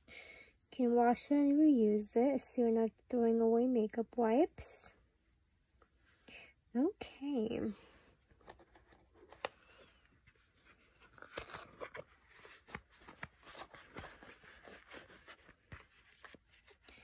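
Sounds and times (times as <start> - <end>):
cloth and plastic rustling: 8.1 - 17.0.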